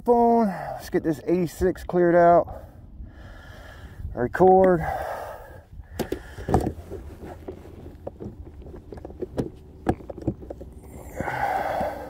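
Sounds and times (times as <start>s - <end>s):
hands tapping plastic hull: 6.0s - 10.7s.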